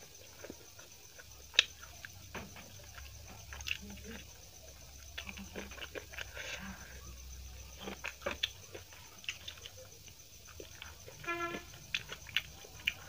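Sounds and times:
mouth smacks and chewing: 0.0 - 13.0.

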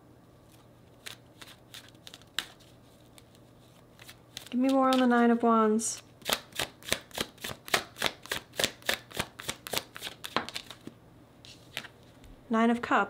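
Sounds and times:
cards being shuffled by hand: 0.4 - 12.2.

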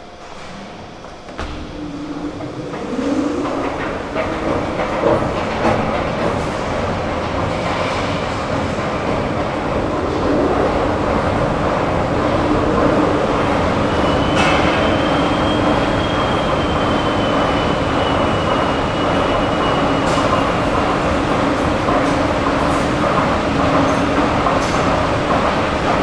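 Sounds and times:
escalator mechanical rumble: 0.0 - 17.2.

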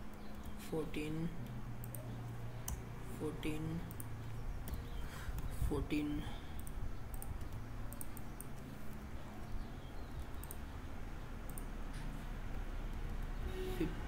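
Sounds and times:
low background hum: 0.0 - 14.0
mouse and keyboard clicks: 6.6 - 9.5.

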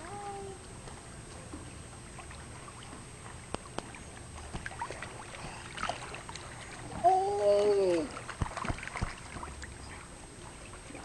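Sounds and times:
high voice holding a vowel: 0.0 - 0.6
pool water sloshing and splashing: 0.2 - 11.0.

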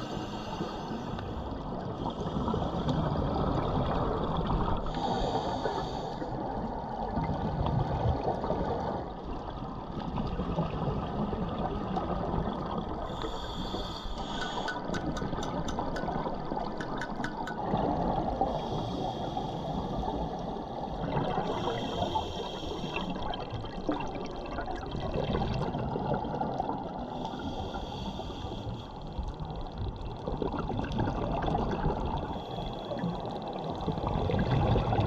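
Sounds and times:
dull rush of water: 0.0 - 35.0
exhaled bubbles underwater: 1.5 - 5.3, 6.3 - 19.1, 19.7 - 27.3, 29.4 - 35.0
faint clicks: 13.2 - 17.7.

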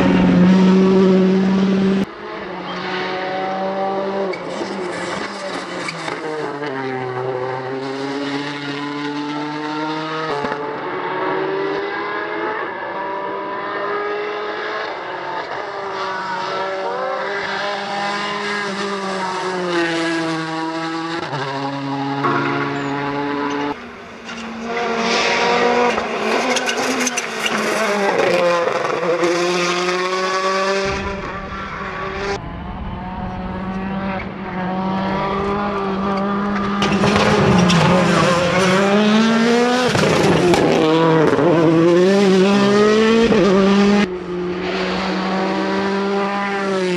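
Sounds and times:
rally car engine accelerating: 0.0 - 46.9.

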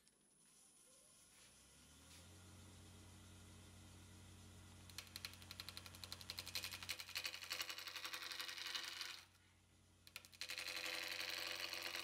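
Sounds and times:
tool tapping spinning wood: 4.9 - 9.2, 10.1 - 12.0.

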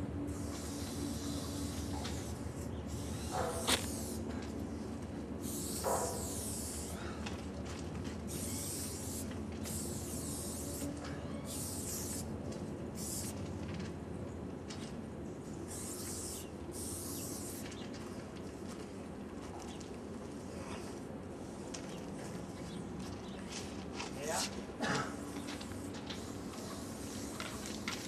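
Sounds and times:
spray paint can hissing: 0.3 - 4.3, 5.4 - 7.0, 8.3 - 12.3, 13.0 - 13.4, 15.7 - 17.8, 25.3 - 28.0.

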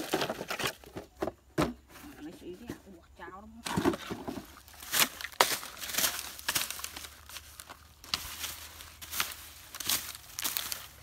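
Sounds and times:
plastic bags and litter rustling: 3.5 - 11.0.

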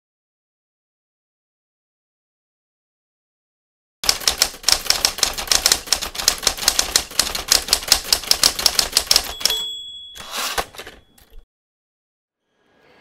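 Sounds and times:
typewriter keys typing quickly: 4.0 - 9.7, 10.4 - 11.0
typewriter carriage return: 4.0 - 11.4
typewriter bell ringing: 4.1 - 11.4.

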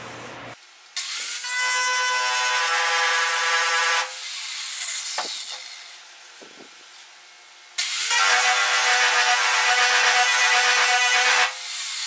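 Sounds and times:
angle grinder on sheet metal: 1.0 - 6.0, 7.8 - 12.0.

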